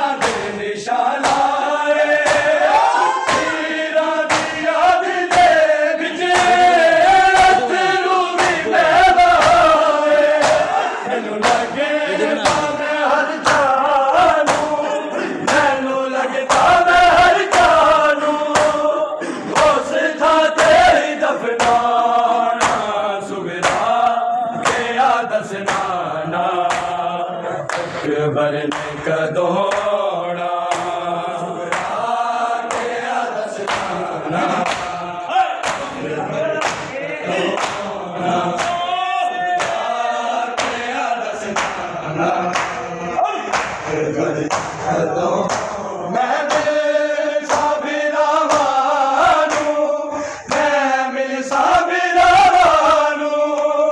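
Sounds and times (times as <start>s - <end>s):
men chanting together: 0.0s - 53.9s.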